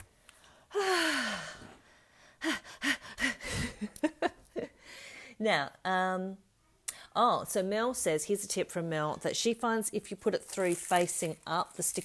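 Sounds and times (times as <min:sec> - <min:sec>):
woman sighing: 0:00.7 - 0:01.7.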